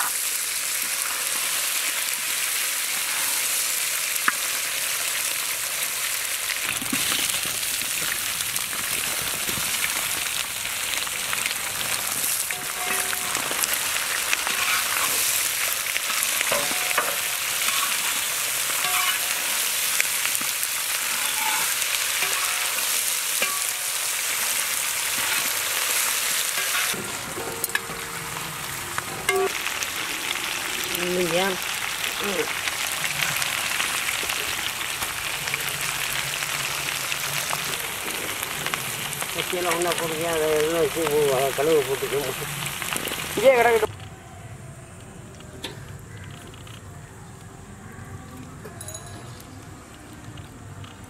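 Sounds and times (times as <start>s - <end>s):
meat and potatoes sizzling: 0.0s - 43.9s
spatula scraping pan: 12.5s - 19.6s, 20.3s - 23.8s.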